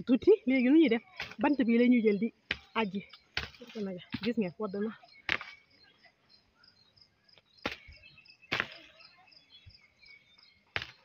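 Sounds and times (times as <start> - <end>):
insects chirping faintly: 0.0 - 11.0
stick knocking on tree: 3.4 - 4.4, 5.3 - 5.6, 7.6 - 8.9, 10.7 - 11.0.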